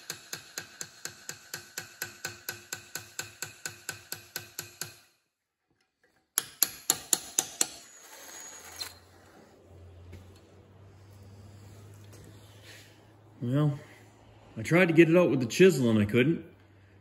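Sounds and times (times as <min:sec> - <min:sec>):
hammer tapping chisel on metal: 0:00.0 - 0:05.2, 0:06.3 - 0:07.8.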